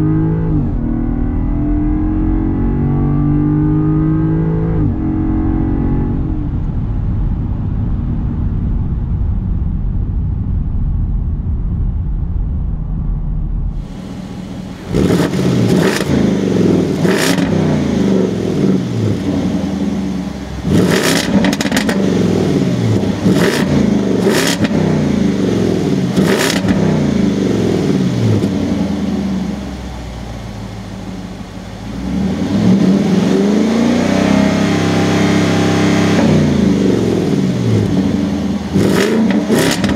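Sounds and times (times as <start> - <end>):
engine revving: 0.0 - 6.8, 13.7 - 39.9
engine drone inside car: 0.0 - 39.9
engine idling: 6.5 - 34.0
exhaust pops and crackles: 20.7 - 22.1, 38.8 - 39.9.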